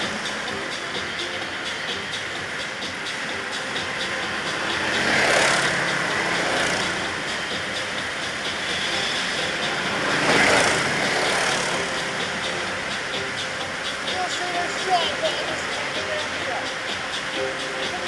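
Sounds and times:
ice karts running: 0:03.0 - 0:12.6.

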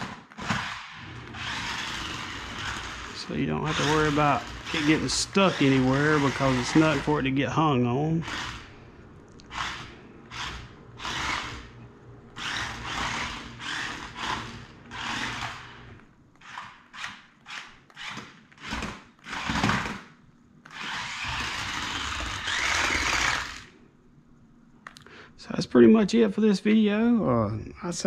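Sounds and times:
toy car motors whirring: 0:00.0 - 0:07.1, 0:08.2 - 0:08.8, 0:09.4 - 0:11.7, 0:12.4 - 0:15.8, 0:16.4 - 0:20.0, 0:20.6 - 0:23.8.

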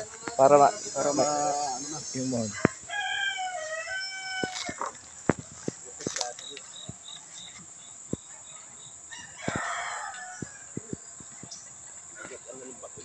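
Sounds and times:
rooster crowing: 0:02.4 - 0:04.9, 0:09.1 - 0:10.8.

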